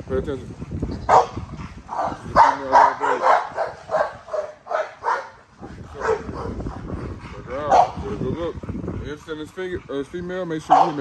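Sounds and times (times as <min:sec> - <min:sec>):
dog barking: 0:01.1 - 0:01.4, 0:02.0 - 0:05.4, 0:06.0 - 0:06.6, 0:07.7 - 0:08.0, 0:10.7 - 0:11.0.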